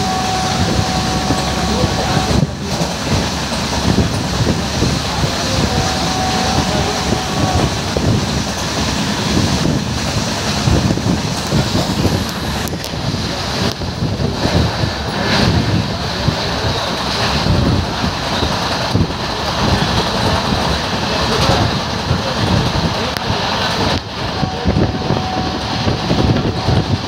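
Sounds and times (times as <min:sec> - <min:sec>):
train rumbling on track: 0:00.0 - 0:27.0
wind buffeting microphone: 0:00.0 - 0:27.0.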